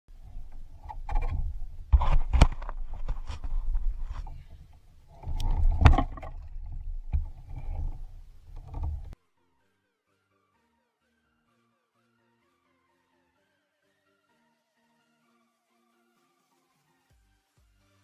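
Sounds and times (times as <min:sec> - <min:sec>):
wind rumble on microphone: 0:00.2 - 0:09.2.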